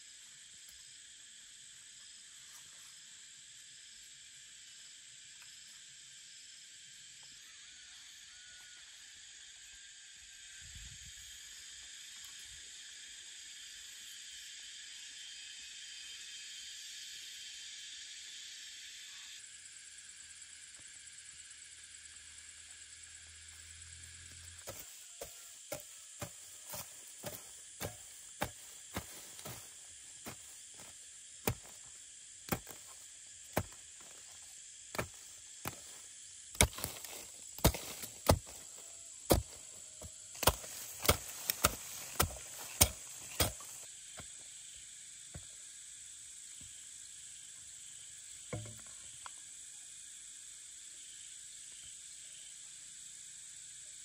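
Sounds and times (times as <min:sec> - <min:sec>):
hoe chopping into dry soil: 0:24.6 - 0:31.9, 0:32.5 - 0:44.3.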